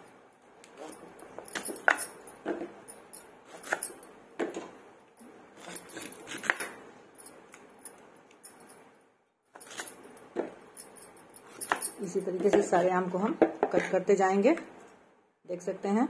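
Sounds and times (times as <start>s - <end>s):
bangles clinking: 0.0s - 4.2s, 5.2s - 13.1s
mangoes being cut on a blade: 3.5s - 3.8s, 5.6s - 6.7s.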